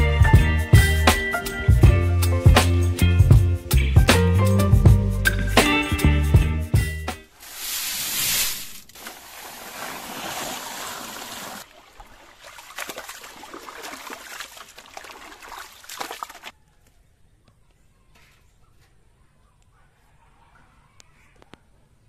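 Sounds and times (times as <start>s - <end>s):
water sloshing in a pot: 7.4s - 16.5s.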